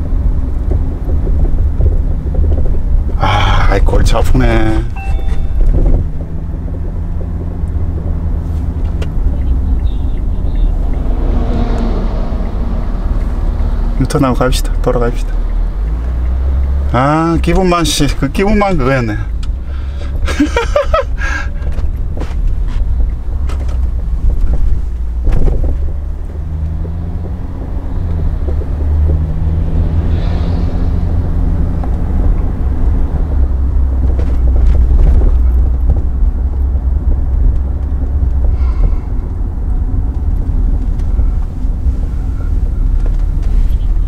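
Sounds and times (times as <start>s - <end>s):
car hum: 0.0s - 44.0s
car road rumble from cabin: 0.0s - 44.0s.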